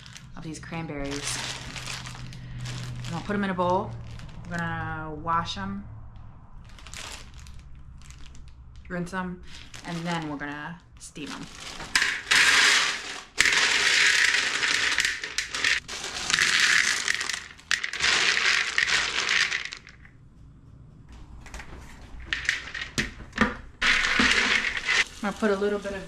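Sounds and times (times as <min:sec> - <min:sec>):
frozen berries rattling into a bowl: 0:00.0 - 0:04.8, 0:06.7 - 0:08.5, 0:09.4 - 0:20.1, 0:22.3 - 0:23.0, 0:23.8 - 0:26.0.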